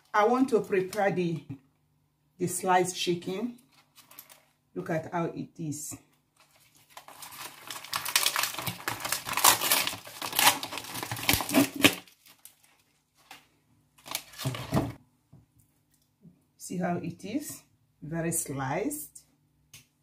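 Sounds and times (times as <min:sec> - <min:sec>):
plastic film crinkling and tearing: 0:03.6 - 0:04.6, 0:06.4 - 0:14.9.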